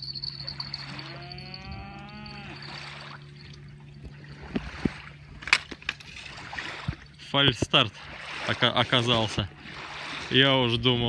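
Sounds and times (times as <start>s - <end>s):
steady low hum: 0.0s - 11.0s
animal lowing: 0.1s - 3.5s.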